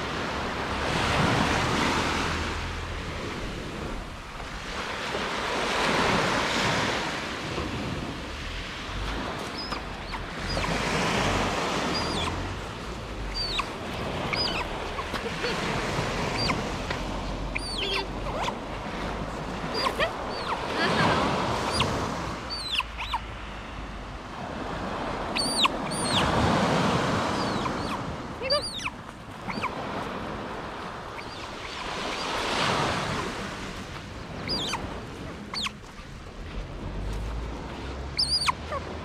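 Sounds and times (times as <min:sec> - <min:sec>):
otter chirping: 0:09.5 - 0:10.8, 0:11.8 - 0:12.5, 0:13.1 - 0:15.6, 0:16.2 - 0:18.6, 0:19.7 - 0:23.4, 0:25.3 - 0:26.4, 0:27.3 - 0:29.8, 0:31.1 - 0:32.4, 0:34.4 - 0:35.8, 0:38.2 - 0:38.8.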